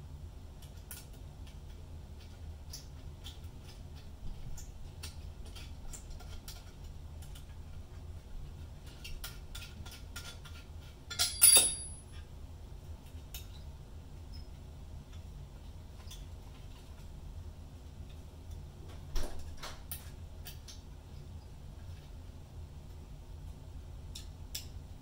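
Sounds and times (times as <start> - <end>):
metallic clink ringing: 11.1 - 12.2.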